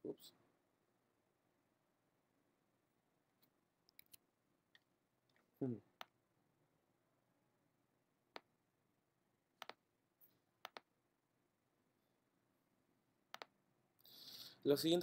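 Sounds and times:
computer mouse clicks: 3.4s - 4.2s, 9.6s - 9.8s, 10.6s - 10.9s, 13.3s - 13.5s.

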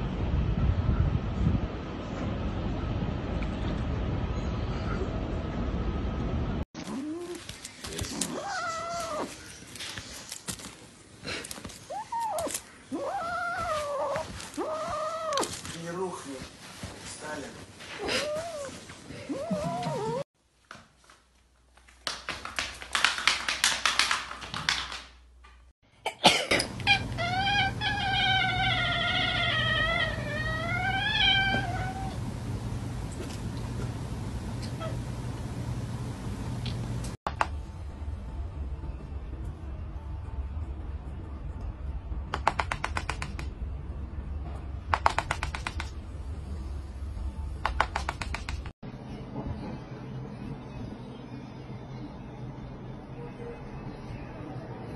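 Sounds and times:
cat yowling: 8.3s - 9.4s, 11.9s - 15.6s, 26.6s - 32.4s
steady low hum: 26.6s - 42.1s
rapid clicking taps: 45.0s - 46.0s, 47.6s - 48.7s.

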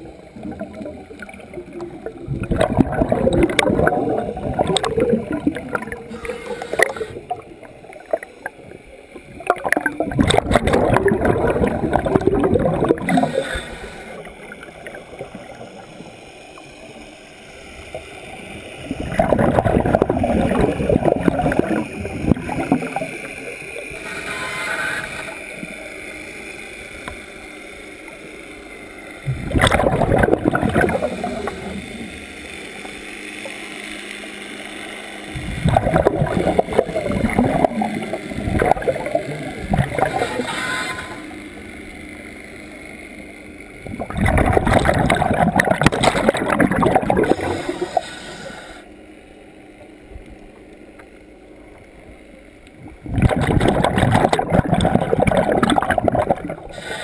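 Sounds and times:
exhaled bubbles underwater: 0.0s - 16.2s, 17.9s - 25.7s, 29.2s - 32.3s, 35.4s - 41.4s, 43.8s - 48.5s, 52.7s - 57.0s
quiet underwater gurgling: 0.0s - 57.0s.

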